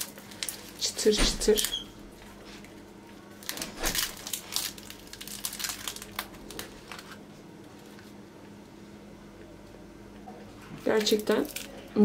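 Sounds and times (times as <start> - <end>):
crisp flatbread crackling: 0.0 - 1.0, 2.2 - 8.2.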